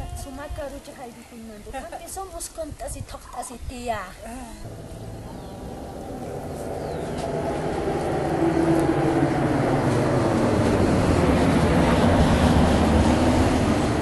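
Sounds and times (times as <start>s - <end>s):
low rumbling noise: 4.6s - 14.0s.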